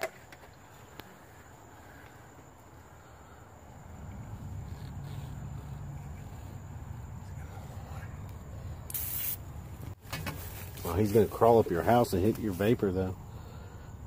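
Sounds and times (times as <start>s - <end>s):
high insect trill: 0.0s - 14.0s
faint hiss: 7.2s - 9.6s.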